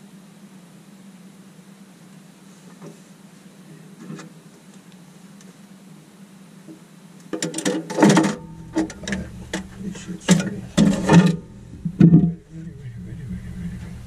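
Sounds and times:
low steady hum: 0.0 - 14.0
clatters and knocks: 7.4 - 12.5.

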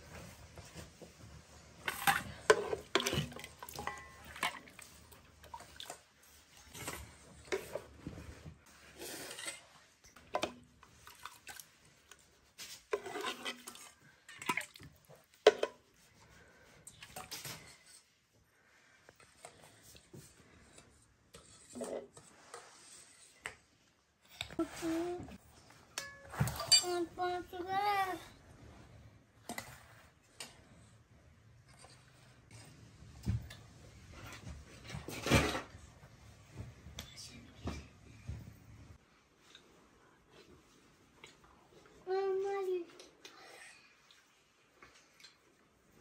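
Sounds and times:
ladle clinking on steel bowls: 1.8 - 4.8.

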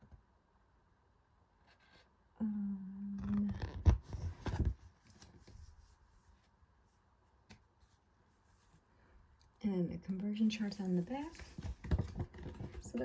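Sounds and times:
faint handling sounds: 3.2 - 13.0
paper rustling: 10.4 - 13.0.

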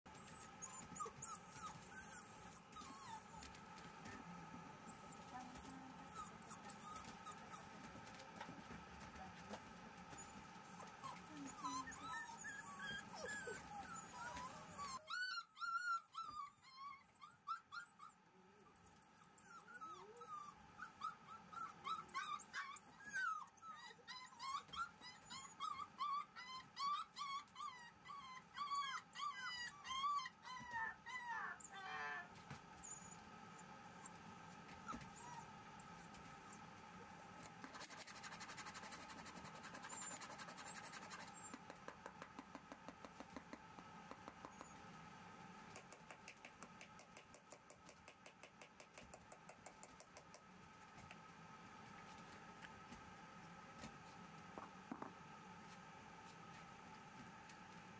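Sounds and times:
puppy whining and yipping: 0.1 - 3.6, 4.8 - 8.3, 9.6 - 32.2, 32.8 - 36.7.

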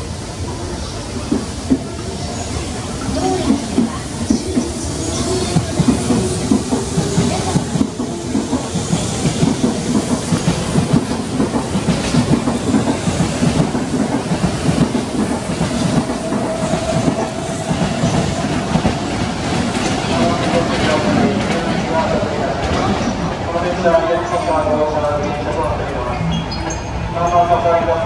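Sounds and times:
train wheels clattering over rail joints: 5.4 - 21.8.

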